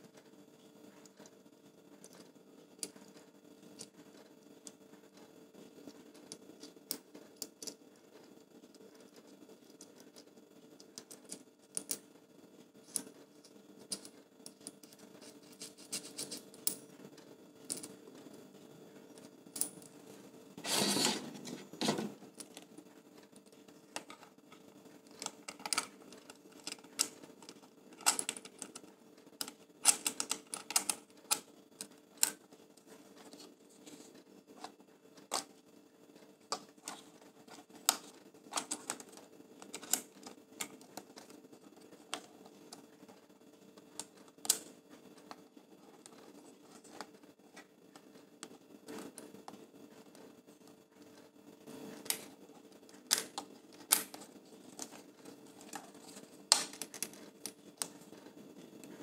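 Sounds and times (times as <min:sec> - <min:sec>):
scraping rub: 0:15.1 - 0:16.6, 0:20.6 - 0:22.2
small metal and plastic clicks: 0:25.1 - 0:32.4.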